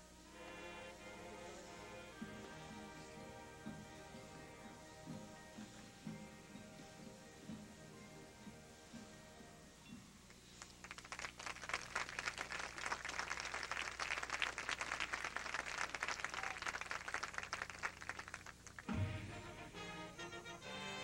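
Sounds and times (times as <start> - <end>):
marching band held notes: 0.0 - 9.8, 18.8 - 21.0
crowd applauding: 10.6 - 19.0.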